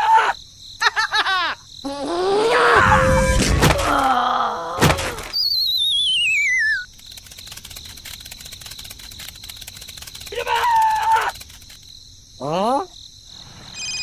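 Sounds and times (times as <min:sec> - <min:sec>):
falling wobbling whistle: 0:05.3 - 0:06.9.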